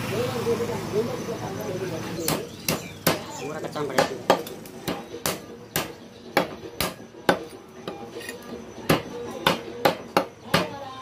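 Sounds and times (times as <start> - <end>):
cleaver chopping meat and bone: 2.2 - 10.8.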